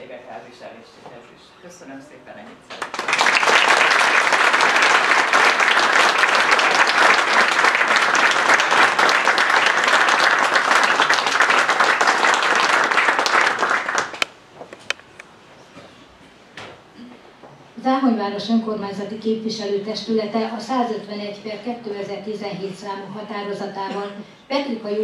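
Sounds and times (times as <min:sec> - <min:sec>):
audience applauding: 0:02.7 - 0:14.3.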